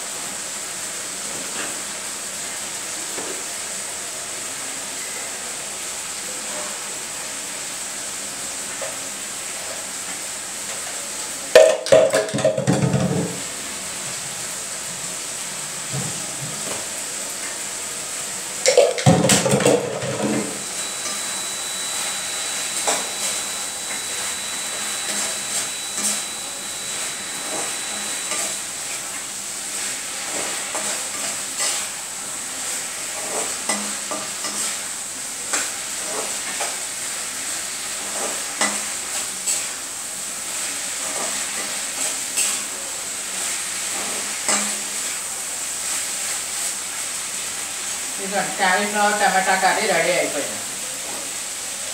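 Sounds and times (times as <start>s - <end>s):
curry sizzling in a pan: 0.0s - 51.9s
spatula scraping a pan: 20.2s - 32.0s, 32.6s - 36.8s, 37.9s - 39.8s, 40.5s - 42.7s.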